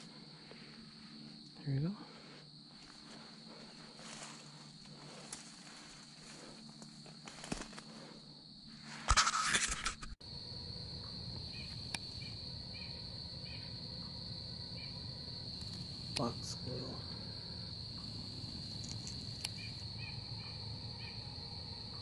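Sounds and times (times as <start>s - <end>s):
high insect drone: 0.0s - 22.0s
footsteps in dry leaves: 2.8s - 7.8s.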